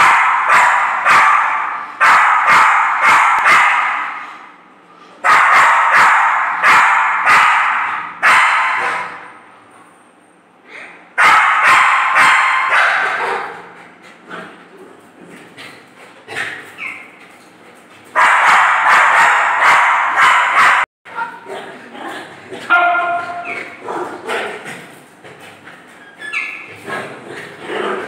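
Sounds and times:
dog barking angrily: 0:00.0 - 0:04.3, 0:05.2 - 0:09.3, 0:11.2 - 0:14.6, 0:18.1 - 0:21.7, 0:22.5 - 0:24.9.

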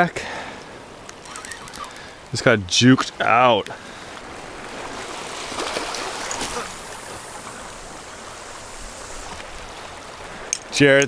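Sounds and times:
small waves washing among rocks: 0:03.1 - 0:10.8.

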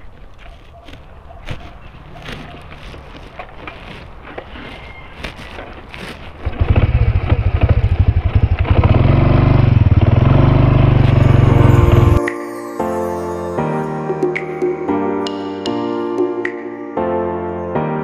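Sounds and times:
motor scooter engine revving: 0:06.4 - 0:12.2.

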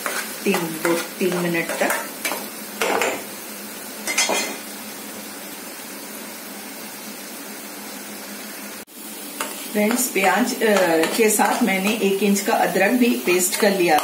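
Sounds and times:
spatula scraping pan: 0:00.0 - 0:03.2, 0:09.4 - 0:12.2
paste sizzling in oil: 0:00.0 - 0:14.0.

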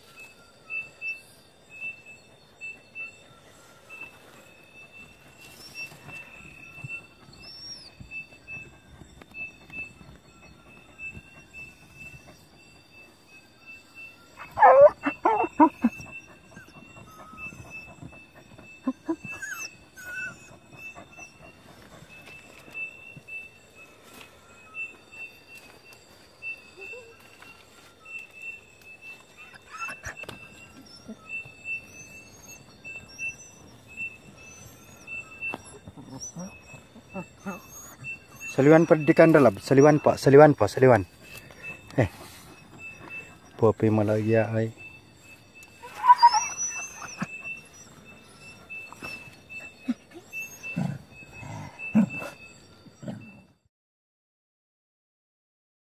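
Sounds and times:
high insect trill: 0:00.0 - 0:53.6
dog whining: 0:04.8 - 0:13.3, 0:13.9 - 0:23.5, 0:26.4 - 0:43.9, 0:44.7 - 0:53.6.

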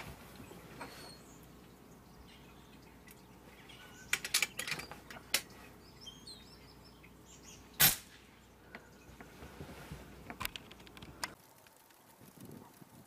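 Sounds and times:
starling chirping and clicking: 0:00.4 - 0:07.9
air rifle shot: 0:07.8 - 0:08.3.

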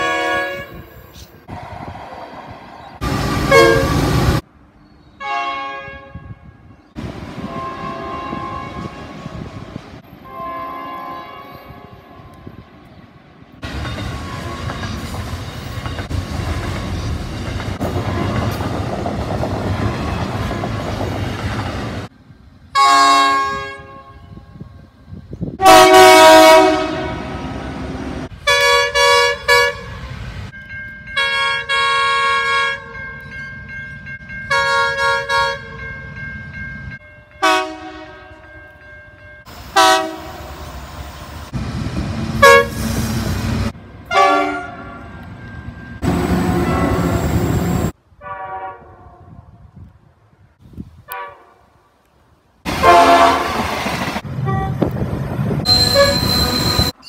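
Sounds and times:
locomotive horn blasts: 0:00.0 - 0:01.0, 0:03.0 - 0:04.3, 0:05.2 - 0:06.7, 0:07.4 - 0:09.2, 0:10.0 - 0:12.3, 0:22.8 - 0:24.8, 0:25.6 - 0:27.5, 0:28.4 - 0:30.1, 0:31.2 - 0:33.0, 0:34.5 - 0:35.8, 0:37.4 - 0:38.5, 0:39.8 - 0:40.5, 0:42.4 - 0:42.9, 0:44.1 - 0:45.2, 0:48.2 - 0:49.4, 0:51.1 - 0:51.6, 0:52.7 - 0:53.6, 0:54.4 - 0:54.9, 0:55.6 - 0:57.0.

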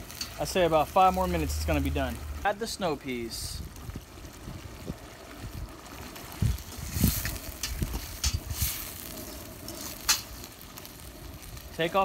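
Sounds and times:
metal utensils scraping a pot: 0:06.9 - 0:10.4.

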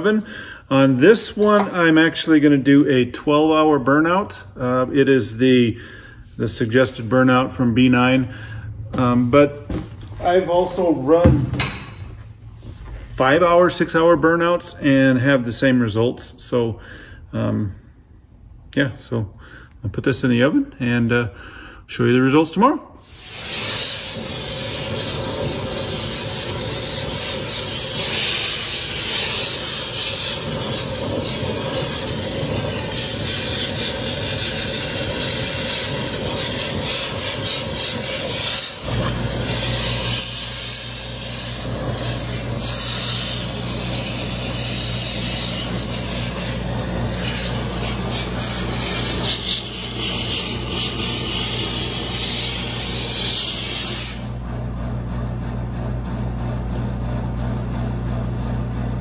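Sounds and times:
torch flame hissing: 0:23.0 - 0:54.4
electric motor hum: 0:23.1 - 0:59.0.

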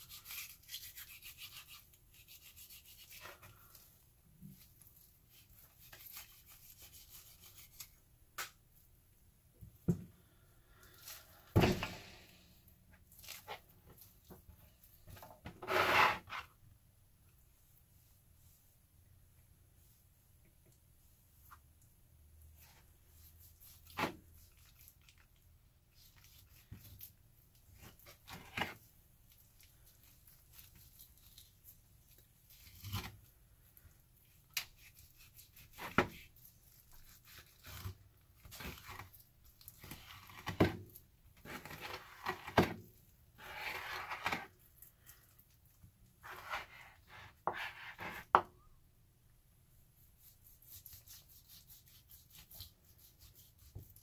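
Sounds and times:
knife cutting meat on board: 0:36.9 - 0:37.9.

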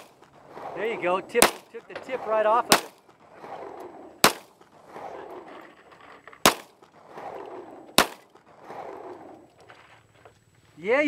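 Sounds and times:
handgun shots: 0:02.7 - 0:03.0, 0:04.2 - 0:04.5, 0:06.4 - 0:06.7, 0:08.0 - 0:08.2.

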